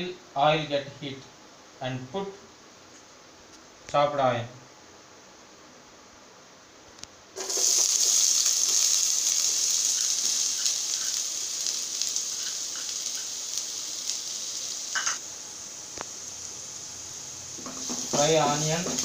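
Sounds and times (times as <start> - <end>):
onion sizzling in hot oil: 7.4 - 19.0.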